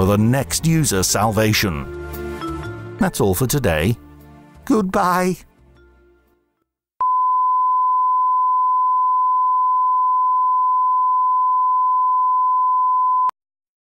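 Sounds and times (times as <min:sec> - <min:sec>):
electronic test tone: 0:07.0 - 0:13.3.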